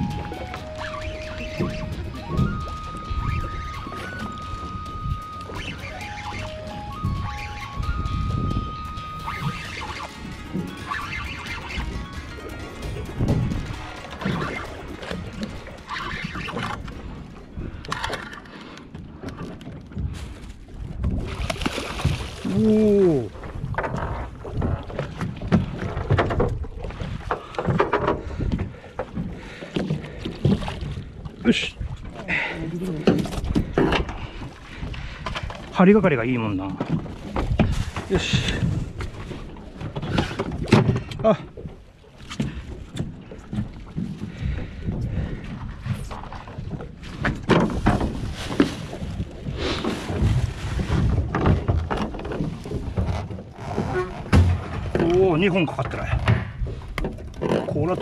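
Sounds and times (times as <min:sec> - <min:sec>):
wind on microphone: 0:00.0 - 0:18.2, 0:42.4 - 0:55.0
knocks and thumps on boat: 0:00.0 - 0:32.2, 0:32.8 - 0:58.0
water slapping against hull: 0:00.0 - 0:58.0.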